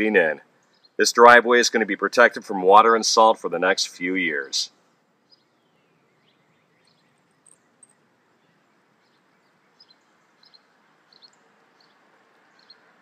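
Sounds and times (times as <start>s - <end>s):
faint bird chirps: 0.5s - 1.0s, 4.8s - 13.0s.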